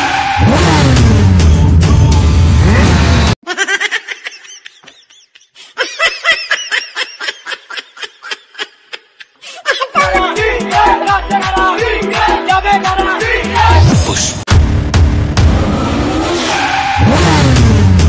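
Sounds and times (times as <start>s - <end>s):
loud music: 0.0s - 3.4s, 10.0s - 18.0s
laughter in quick pulses: 3.4s - 10.0s.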